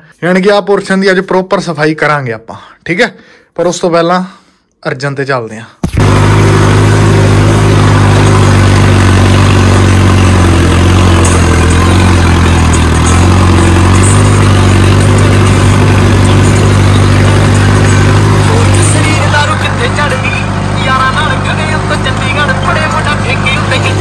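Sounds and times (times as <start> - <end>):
tractor diesel engine running: 5.8 - 24.0.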